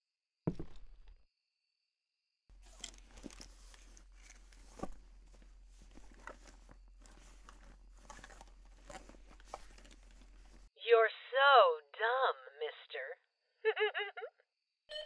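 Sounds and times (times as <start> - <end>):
rustling: 2.5 - 10.7.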